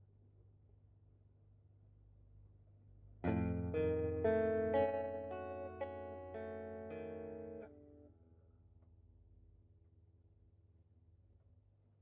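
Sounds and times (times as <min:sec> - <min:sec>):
guitar chord ringing: 0:03.2 - 0:08.1.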